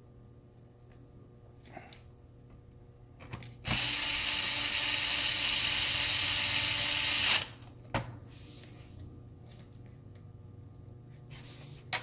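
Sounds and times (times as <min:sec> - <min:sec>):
electric screwdriver running: 0:03.7 - 0:07.6.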